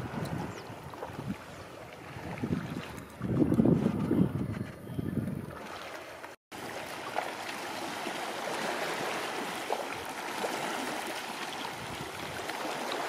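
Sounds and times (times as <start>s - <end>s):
small waves lapping on rocks: 5.6s - 13.0s.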